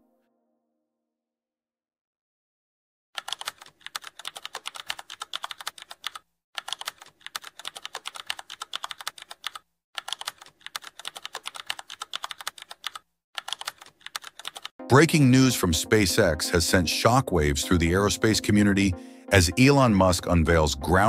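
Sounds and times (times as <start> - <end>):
rapid keyboard typing: 3.2 - 14.8.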